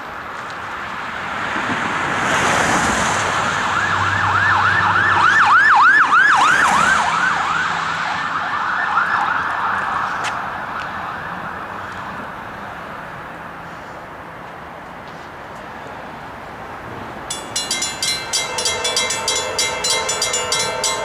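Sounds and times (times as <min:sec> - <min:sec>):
emergency vehicle siren yelping: 0:03.5 - 0:11.8.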